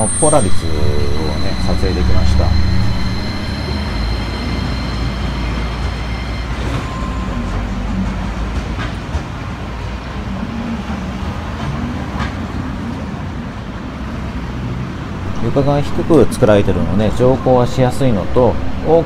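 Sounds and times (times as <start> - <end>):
tram motors and wheels on rail: 0.0 - 19.0.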